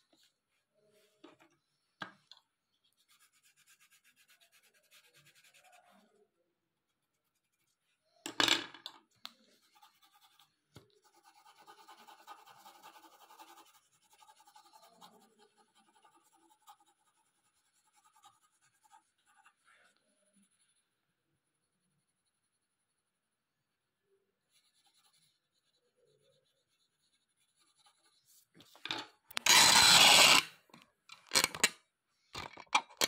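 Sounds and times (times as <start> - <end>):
pencil scratching on paper: 2.7 - 8.1, 9.2 - 23.0, 24.4 - 28.8, 29.4 - 30.5.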